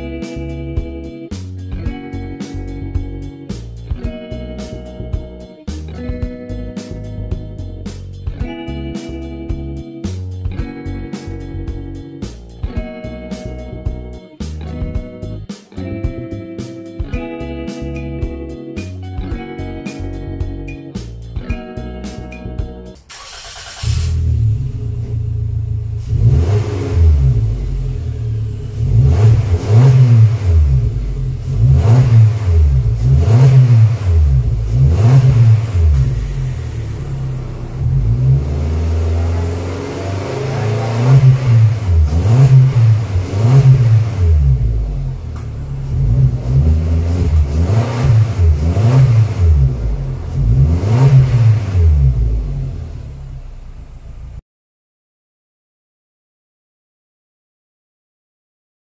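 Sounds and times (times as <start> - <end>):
car engine idling: 23.0 - 51.0, 51.7 - 54.4
car engine revving: 23.0 - 54.4.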